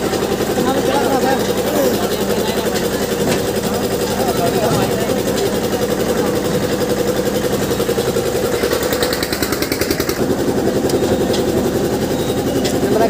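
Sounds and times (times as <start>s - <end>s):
engine running with rapid pulsing: 0.0s - 13.0s
people's voices: 0.0s - 13.0s.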